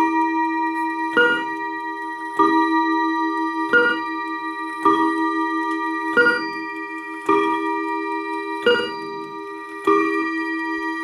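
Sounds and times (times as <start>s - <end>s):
mantel clock two-tone strike: 0.0s - 11.0s.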